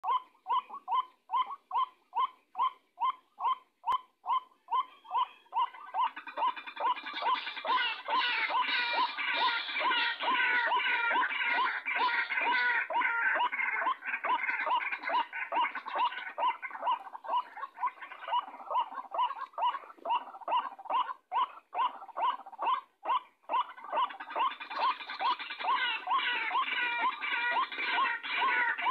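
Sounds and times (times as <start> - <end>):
waterhen hoarse call: 0.0 - 28.9.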